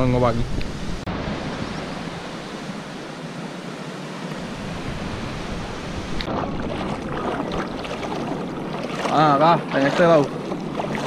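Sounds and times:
surf washing onto beach: 4.4s - 11.0s
water sloshing from wading: 6.0s - 11.0s.

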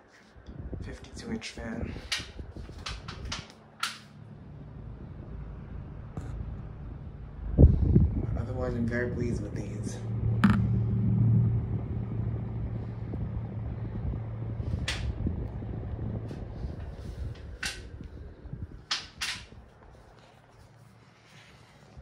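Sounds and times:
ceiling fan motor hum: 0.4s - 21.5s
sharp clicks or knocks: 10.4s - 10.7s.

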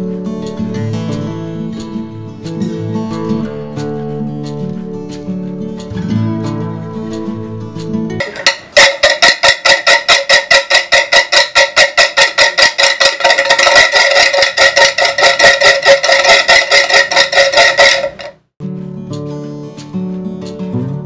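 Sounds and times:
creaky clicking noisemaker: 8.2s - 18.4s.

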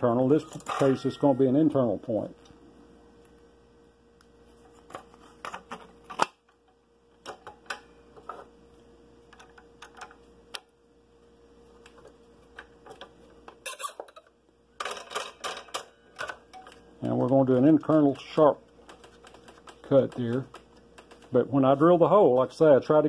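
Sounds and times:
small clicks and taps: 18.8s - 21.4s.

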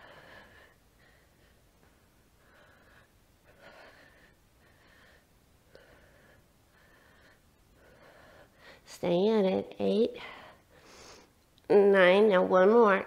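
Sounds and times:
faint breathing: 0.0s - 8.9s, 10.1s - 11.4s.

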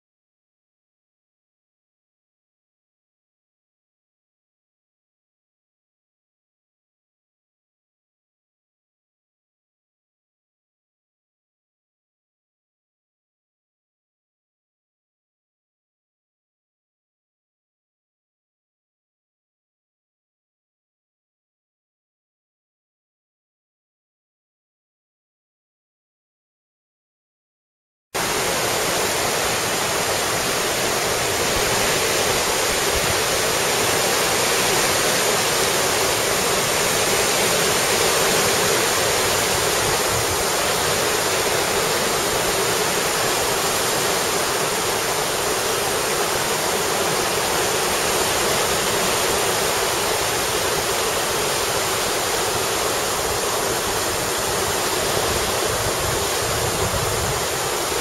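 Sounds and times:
churning tidal water rushing: 28.2s - 58.0s.

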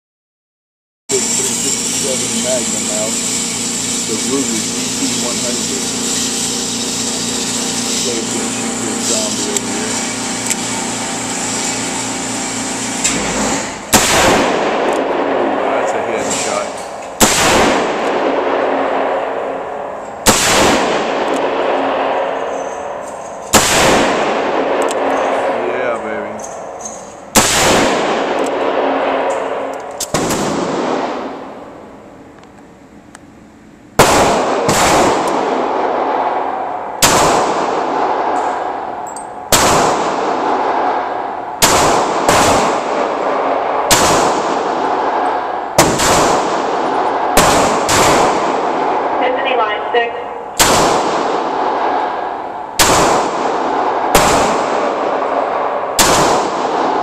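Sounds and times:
handgun shots echoing indoors: 13.9s - 15.5s, 17.2s - 19.2s, 20.2s - 25.5s, 26.4s - 31.6s, 34.0s - 48.8s, 50.6s - 52.1s, 52.8s - 57.0s.

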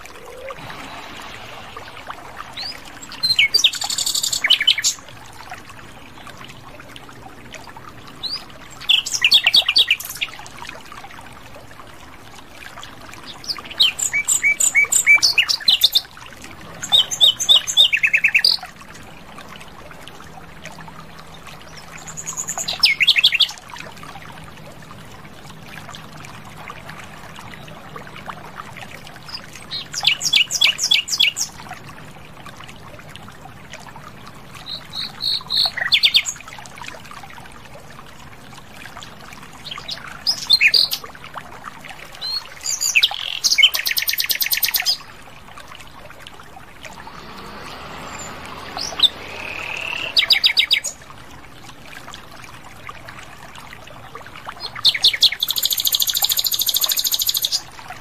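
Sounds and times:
nightingale singing: 48.2s - 51.0s.

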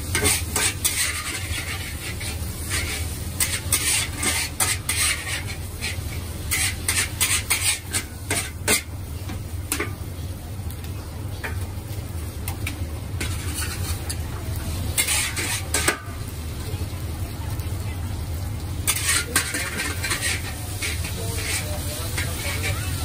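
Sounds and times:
spatula scraping and clanking on wok: 0.0s - 10.1s, 12.5s - 16.3s, 18.8s - 23.0s.

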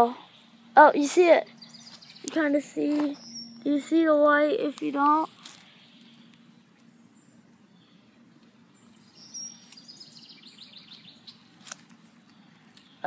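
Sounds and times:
small bird trilling: 1.4s - 4.4s.

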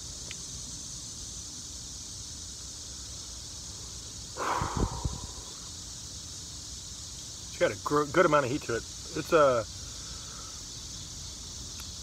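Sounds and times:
outdoor background hiss: 0.0s - 12.0s
tiny tick: 0.2s - 0.4s, 11.7s - 12.0s.

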